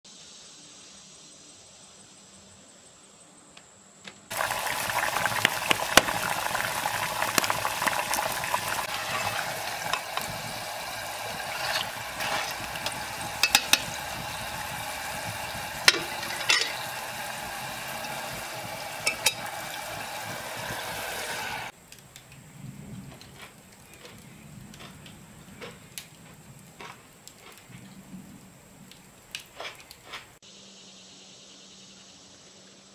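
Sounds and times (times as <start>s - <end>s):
sharp pops of frying fat: 4.3s - 21.0s
potatoes deep-frying sizzle: 4.3s - 22.3s.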